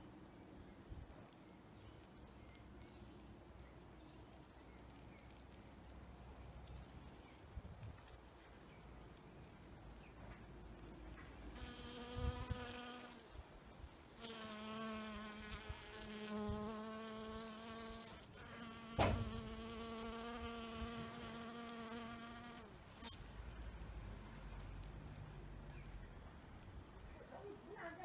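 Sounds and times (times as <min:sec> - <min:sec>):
honeybees buzzing: 0:14.2 - 0:23.2
short knock: 0:19.0 - 0:19.4.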